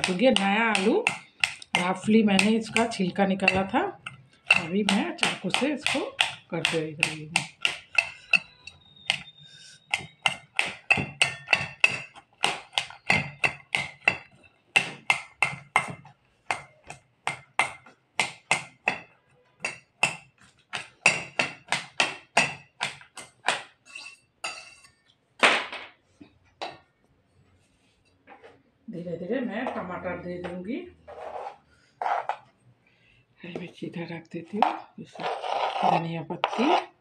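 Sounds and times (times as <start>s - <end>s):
knife tapping a steel bowl: 0.0s - 25.0s.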